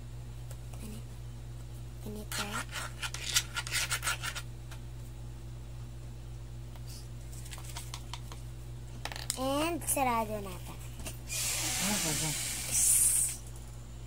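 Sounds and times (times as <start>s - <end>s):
plastic spoon scraping powder: 2.3s - 4.5s.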